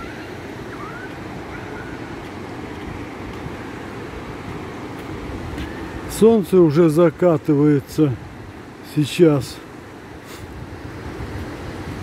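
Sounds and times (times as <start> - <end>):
distant high cries: 0.0 - 2.2
surf washing onto beach: 0.0 - 12.0
wind buffeting microphone: 10.4 - 12.0.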